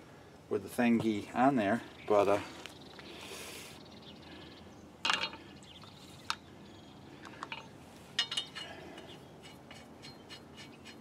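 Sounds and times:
metallic clinks of lug nut: 7.2 - 11.0.

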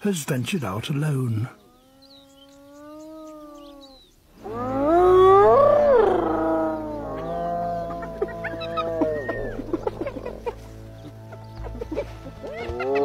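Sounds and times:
hyenas whooping: 2.0 - 10.5.

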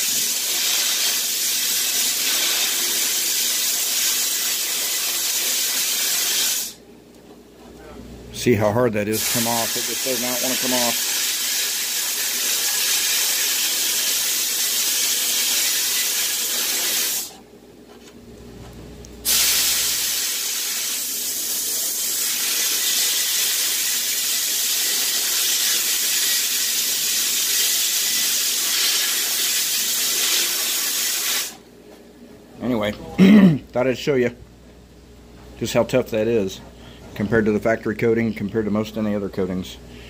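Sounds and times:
sandblasting nozzle hiss: 0.0 - 6.8, 9.2 - 17.3, 19.2 - 31.6.

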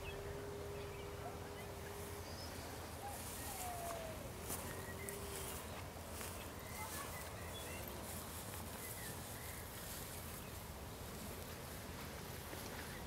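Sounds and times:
faint bird calls: 0.0 - 7.9.

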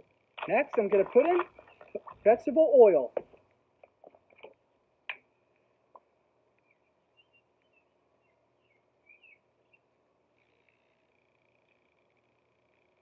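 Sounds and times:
faint bird chirps: 6.6 - 13.0.

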